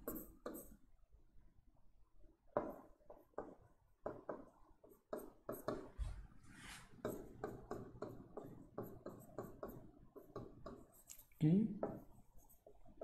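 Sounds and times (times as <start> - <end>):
marker writing on a board: 0.0 - 0.8, 2.5 - 6.1, 6.8 - 13.0.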